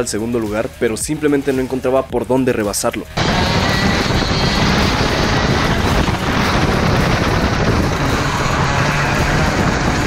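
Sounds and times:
kart engine running hard: 0:03.2 - 0:10.0.

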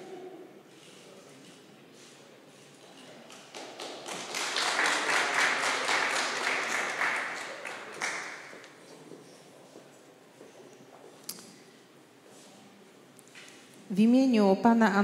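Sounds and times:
audience applauding: 0:03.3 - 0:08.8.

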